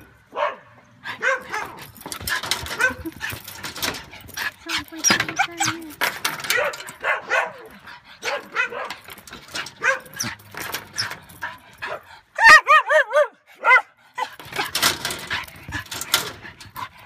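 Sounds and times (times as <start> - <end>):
scrabbling sounds: 1.4 - 12.1
dog whining and yipping: 2.5 - 8.9, 9.5 - 14.7.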